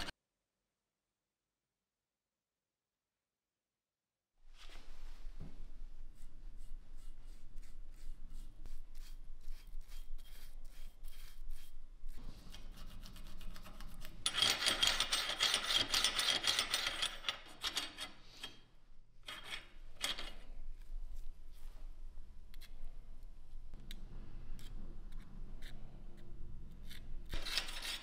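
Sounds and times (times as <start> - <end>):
light brush strokes: 4.5 - 14.1
rifle bolt scraping on metal: 19.2 - 20.4.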